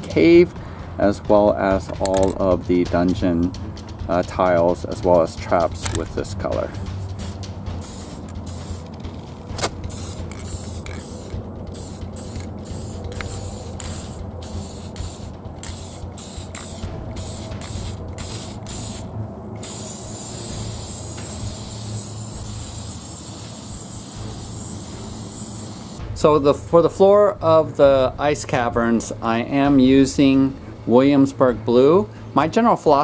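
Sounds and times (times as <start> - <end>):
steady low hum: 0.0 - 32.5
spray paint can hissing: 6.6 - 26.0.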